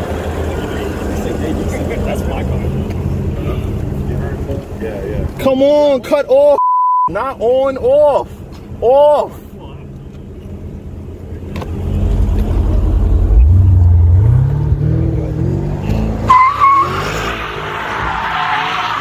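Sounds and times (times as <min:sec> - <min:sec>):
car engine revving: 0:11.2 - 0:18.1
tyres squealing and skidding: 0:15.5 - 0:19.0.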